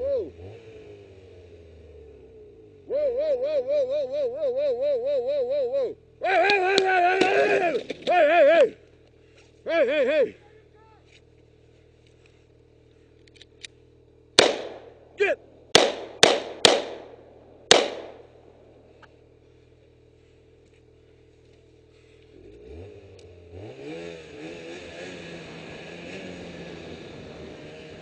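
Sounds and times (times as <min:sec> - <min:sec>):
snowmobile engine idling: 0:00.0 - 0:23.5, 0:24.2 - 0:28.0
pistol shots: 0:14.4 - 0:15.0, 0:15.7 - 0:18.3.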